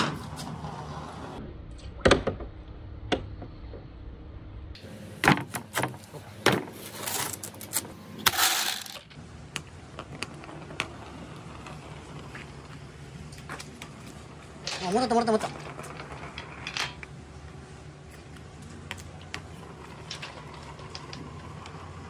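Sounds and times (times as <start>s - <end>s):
billiard balls clacking together: 14.6s - 17.2s, 18.9s - 22.0s.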